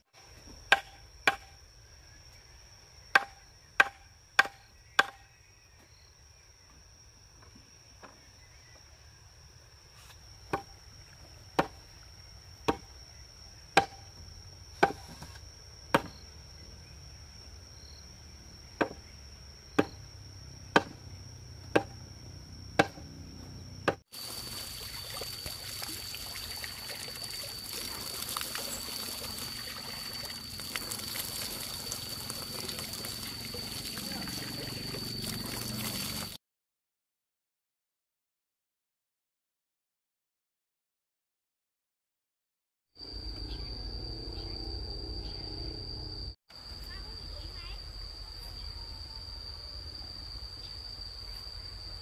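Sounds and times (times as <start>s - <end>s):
high insect drone: 0.1s - 36.4s, 43.0s - 52.0s
chopping blows on wood: 3.2s - 5.2s, 14.8s - 16.2s
trickling water hiss: 24.1s - 36.4s.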